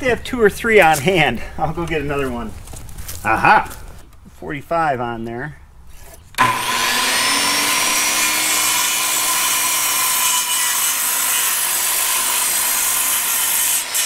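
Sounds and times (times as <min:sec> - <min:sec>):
circular saw cutting wood: 0:06.4 - 0:14.0.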